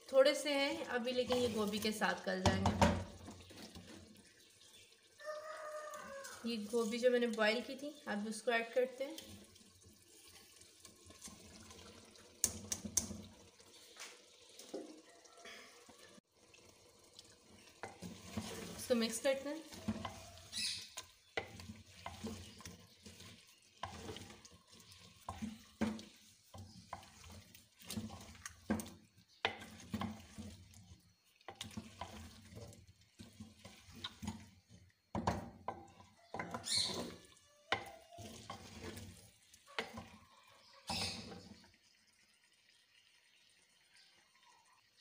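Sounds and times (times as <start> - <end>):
wooden spoon stirring in clay pot: 0.0 - 15.1, 17.1 - 41.8
spoon knocking pot sides: 35.1 - 39.0.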